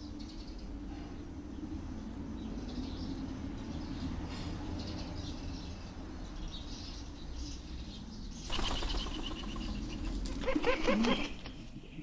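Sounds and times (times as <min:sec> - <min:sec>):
small birds chirping faintly: 0:00.0 - 0:12.0
pigeon wings flapping: 0:08.5 - 0:11.6.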